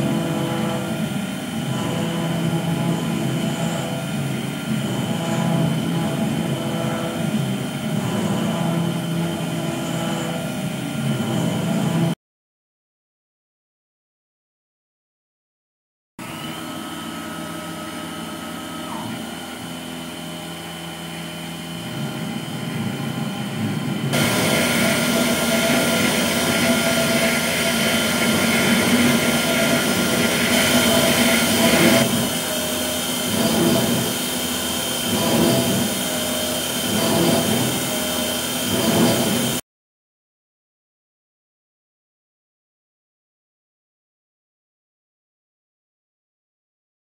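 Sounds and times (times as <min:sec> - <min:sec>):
metal cutting noise: 0:00.0 - 0:12.1, 0:16.2 - 0:39.6
milling machine spindle whine: 0:00.0 - 0:12.2, 0:16.2 - 0:39.6.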